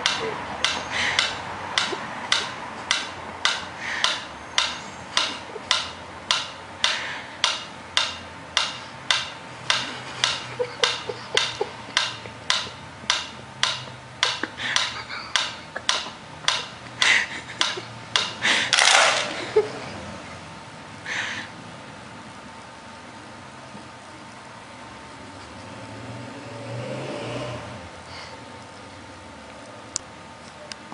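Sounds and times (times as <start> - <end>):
pendulum metronome ticking: 0.0 - 18.8
metronome clattering over: 0.0 - 19.7.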